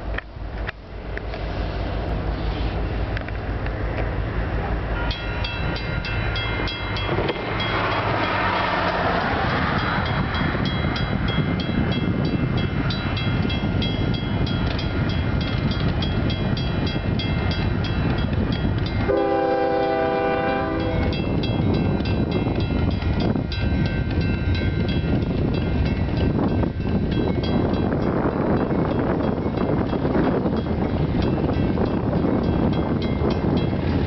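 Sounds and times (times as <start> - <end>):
freight train rumbling: 0.0 - 34.0
crossing bell ringing: 4.8 - 34.0
train air horn blast: 19.1 - 21.2.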